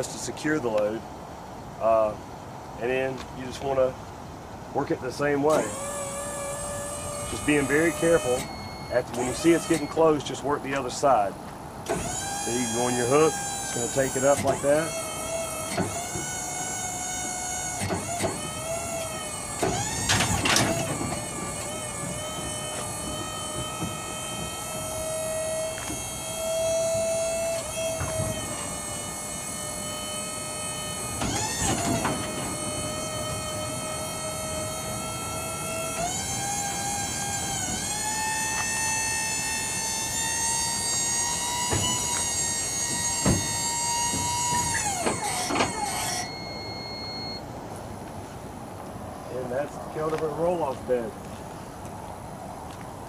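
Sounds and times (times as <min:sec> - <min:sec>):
motor whining: 0:05.5 - 0:10.9, 0:11.8 - 0:47.5.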